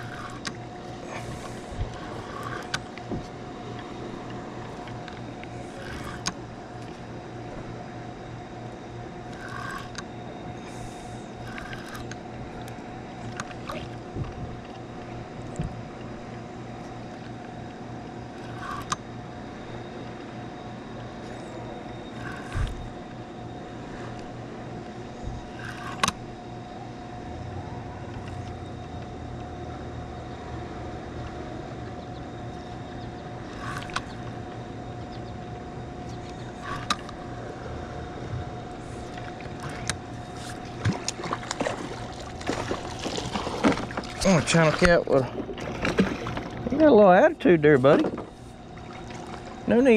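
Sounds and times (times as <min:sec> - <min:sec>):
spinning reel cranking: 0:00.0 - 0:03.0, 0:04.7 - 0:06.9, 0:09.3 - 0:10.1, 0:11.3 - 0:12.8, 0:18.3 - 0:19.0, 0:22.1 - 0:23.0, 0:25.5 - 0:26.2, 0:33.4 - 0:34.4, 0:36.5 - 0:37.2
reel clicks: 0:00.0 - 0:07.1, 0:09.2 - 0:16.1, 0:16.8 - 0:19.1, 0:21.0 - 0:26.2, 0:32.5 - 0:34.6, 0:36.0 - 0:37.3, 0:39.0 - 0:46.9
water splashing: 0:39.1 - 0:46.9, 0:48.0 - 0:49.9.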